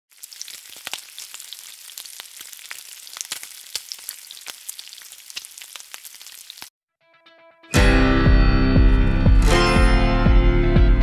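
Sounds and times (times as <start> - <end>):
food sizzling in hot oil: 0.1 - 6.7
oil popping and crackling: 0.1 - 6.7.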